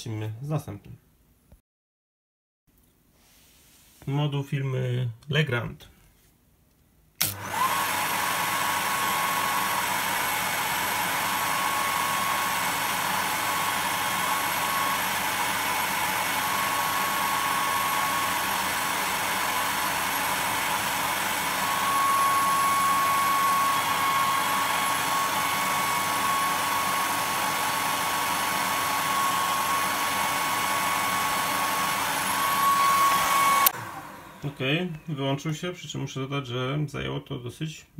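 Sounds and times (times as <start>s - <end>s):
hair dryer running: 7.2s - 35.2s.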